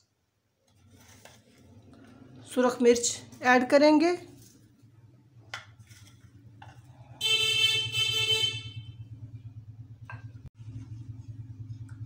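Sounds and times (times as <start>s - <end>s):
steady low hum: 1.2s - 12.0s
vehicle horn held tone: 7.2s - 9.2s.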